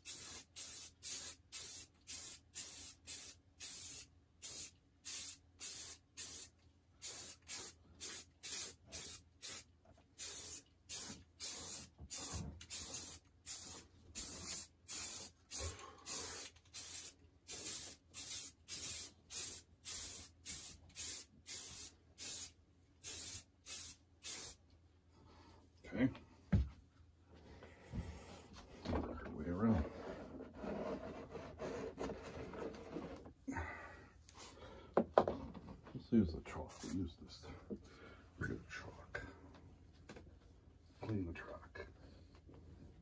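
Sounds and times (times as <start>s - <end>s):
spray paint can spraying: 0.0s - 24.6s.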